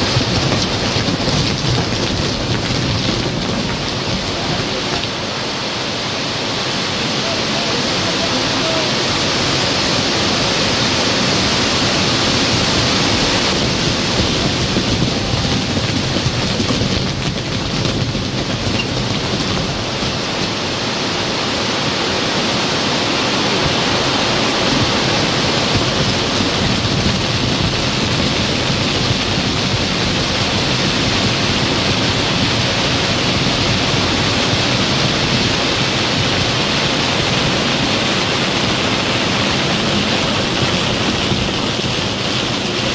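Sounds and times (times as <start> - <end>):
fireworks spraying sparks hissing: 0.0 - 21.5.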